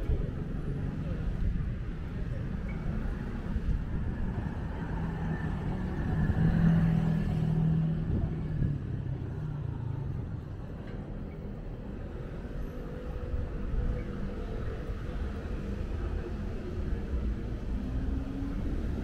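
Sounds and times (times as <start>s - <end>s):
traffic rumble: 0.0s - 19.0s.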